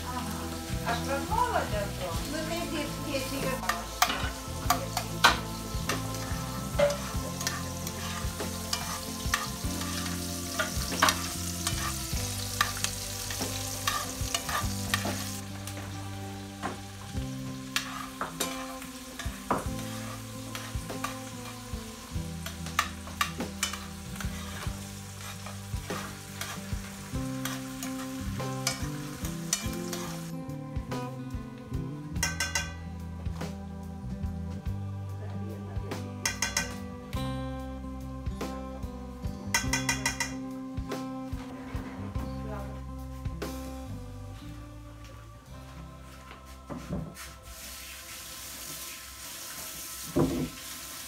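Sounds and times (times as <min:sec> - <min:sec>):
food sizzling in a frying pan: 0:00.0 - 0:34.8, 0:36.2 - 0:37.2, 0:38.2 - 0:41.8, 0:42.8 - 0:44.6, 0:45.5 - 0:51.0
fork scraping a pan: 0:03.6 - 0:15.4, 0:17.6 - 0:21.6, 0:22.4 - 0:30.3, 0:32.2 - 0:32.8, 0:36.2 - 0:36.8, 0:39.5 - 0:40.4.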